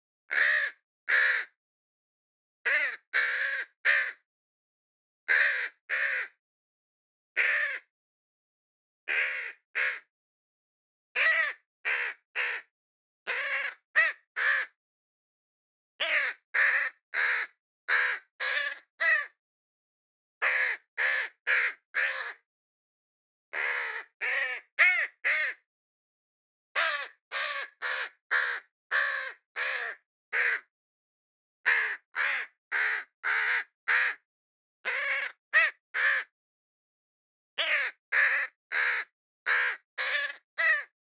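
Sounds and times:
crow cawing: 0:00.3 - 0:01.6, 0:02.7 - 0:04.2, 0:05.3 - 0:06.4, 0:07.4 - 0:07.9, 0:09.1 - 0:10.1, 0:11.2 - 0:12.7, 0:13.3 - 0:14.8, 0:16.0 - 0:19.4, 0:20.4 - 0:22.4, 0:23.5 - 0:25.6, 0:26.8 - 0:30.7, 0:31.6 - 0:34.2, 0:34.8 - 0:36.3, 0:37.6 - 0:41.0.

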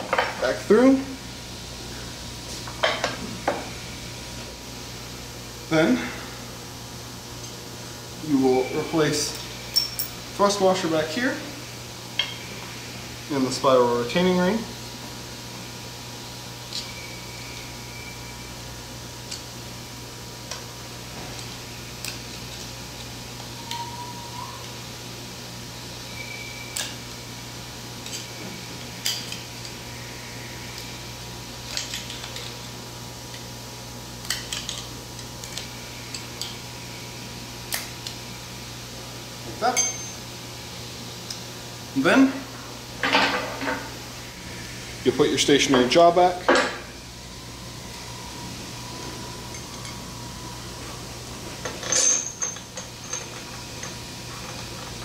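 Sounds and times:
steady low hum: 0:00.0 - 0:55.0
metal clinks: 0:09.3 - 0:10.2, 0:39.8 - 0:40.2, 0:51.7 - 0:54.0.

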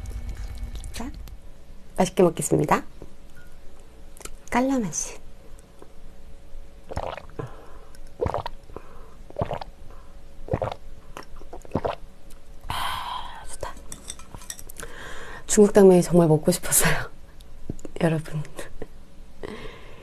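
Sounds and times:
person gulping a drink: 0:06.9 - 0:08.6, 0:09.3 - 0:09.7, 0:10.5 - 0:12.0
breathy exhale: 0:14.8 - 0:15.4, 0:19.4 - 0:20.0.

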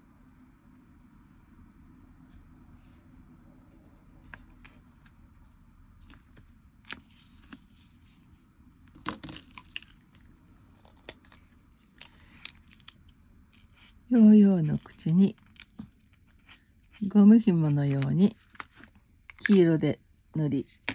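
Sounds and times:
paper rustling and clicking: 0:06.0 - 0:07.9, 0:08.9 - 0:14.0, 0:17.7 - 0:19.7.

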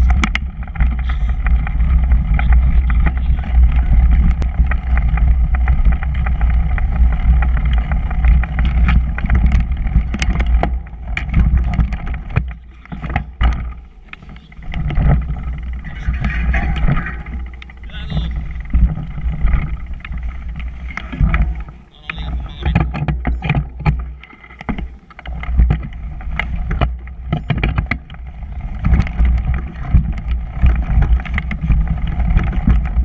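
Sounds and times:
bike rattling over bumps: 0:00.0 - 0:33.0
wind buffeting microphone: 0:00.0 - 0:33.0.

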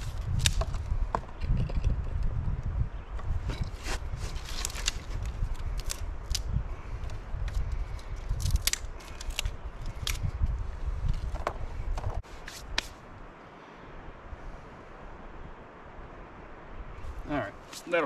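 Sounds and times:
dry sticks snapping: 0:00.1 - 0:00.8, 0:04.4 - 0:10.3.

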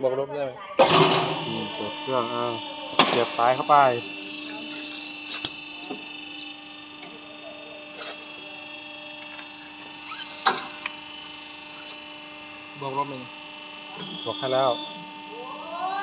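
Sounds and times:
crimping machine humming: 0:00.8 - 0:16.0.

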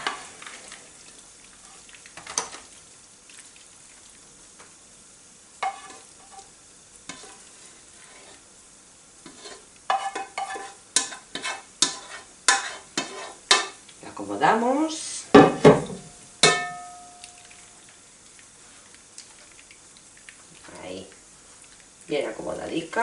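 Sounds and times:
food scraped from metal bowl: 0:07.1 - 0:08.4, 0:09.2 - 0:13.4.

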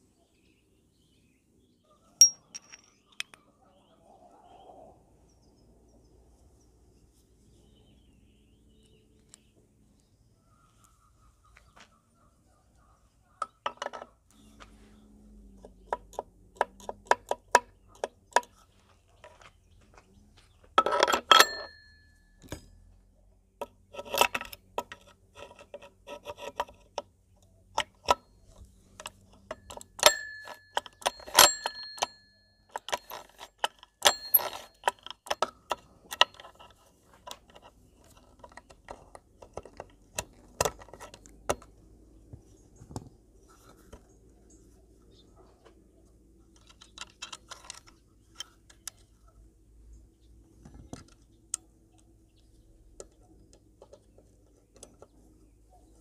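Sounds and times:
metal parts clinking: 0:02.2 - 0:03.0, 0:20.8 - 0:22.6, 0:29.0 - 0:41.7
sharp metal knocks: 0:29.0 - 0:36.5.

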